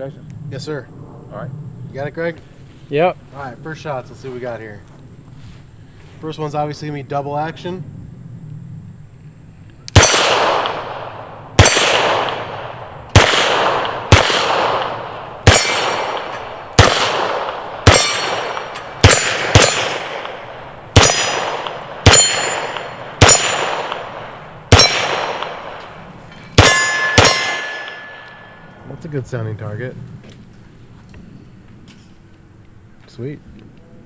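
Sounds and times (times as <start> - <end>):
pistol shots echoing: 9.9 - 26.0, 26.6 - 28.7
steel targets ringing: 15.4 - 16.5, 17.8 - 25.7, 26.3 - 28.8.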